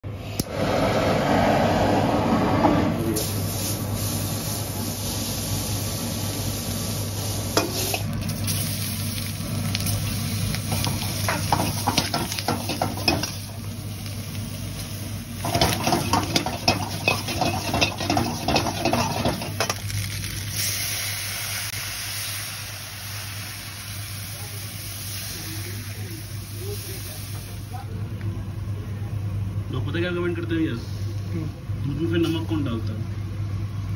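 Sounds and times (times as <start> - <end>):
steady low hum: 0.0 - 33.9
food frying in a wok: 3.2 - 29.6
metal spatula scraping pan: 15.4 - 19.7.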